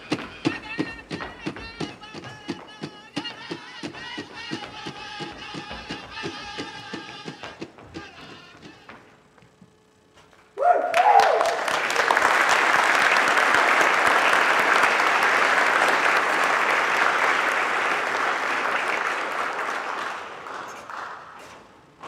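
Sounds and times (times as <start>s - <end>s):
audience applauding: 10.6s - 21.8s.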